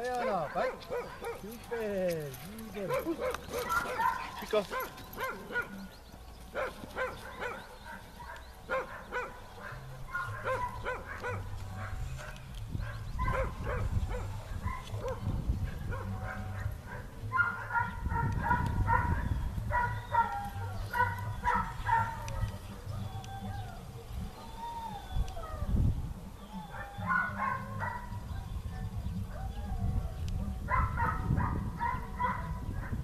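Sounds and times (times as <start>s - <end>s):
dog barking and yipping: 0.0s - 1.8s, 2.4s - 5.9s, 6.5s - 23.8s, 26.5s - 33.0s.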